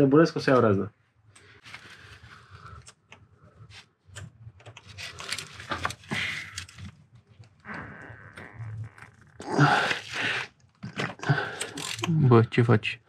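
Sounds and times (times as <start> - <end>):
small metal clicks and scrapes: 11.5 - 12.1.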